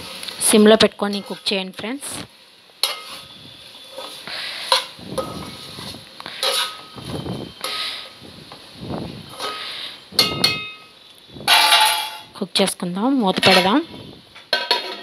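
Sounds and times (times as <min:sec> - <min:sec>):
metal spoon scraping a pot: 0:01.1 - 0:01.6, 0:02.8 - 0:06.9, 0:07.6 - 0:08.1, 0:09.3 - 0:10.7, 0:14.6 - 0:15.0.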